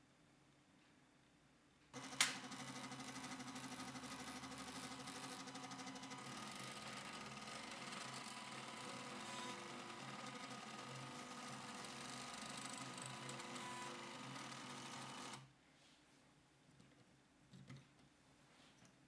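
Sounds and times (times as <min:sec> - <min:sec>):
stepper motors whirring buzz: 0:02.0 - 0:15.4.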